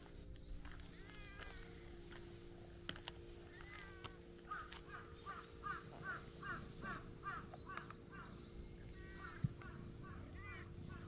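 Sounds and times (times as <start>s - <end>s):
bird calling in falling notes: 3.2s - 11.0s.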